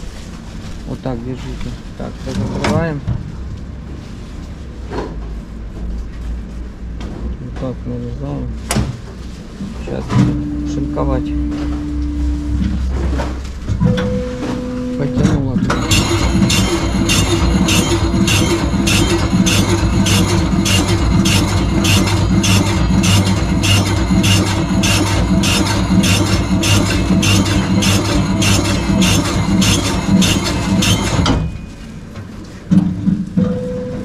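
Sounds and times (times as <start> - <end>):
motor hum: 10.2 - 31.7
slicing blades clacking: 15.7 - 31.6.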